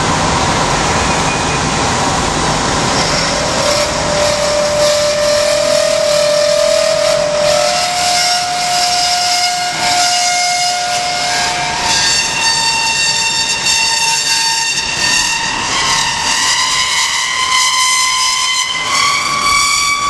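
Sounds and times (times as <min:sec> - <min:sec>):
band saw cutting metal: 0:02.4 - 0:20.0.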